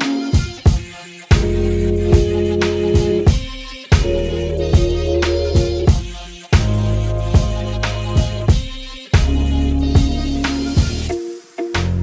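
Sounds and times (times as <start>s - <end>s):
drum hits: 0.4s - 9.4s
deep sustained bass notes: 1.4s - 3.3s, 4.0s - 6.0s, 6.6s - 8.5s.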